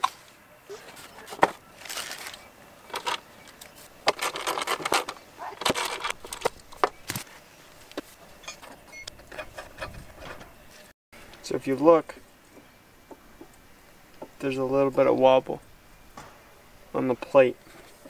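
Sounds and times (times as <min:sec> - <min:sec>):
mower parts clicking and scraping: 0:00.9 - 0:07.3, 0:07.9 - 0:10.9.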